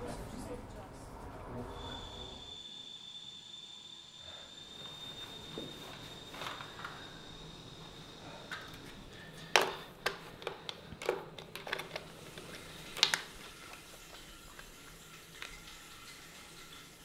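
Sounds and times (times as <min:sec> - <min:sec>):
plastic case clicking: 0:09.6 - 0:13.2.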